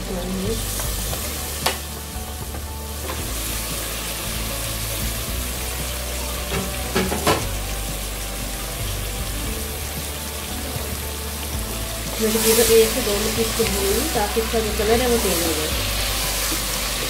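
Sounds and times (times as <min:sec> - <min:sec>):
meat sizzling in hot oil: 0:00.0 - 0:17.0.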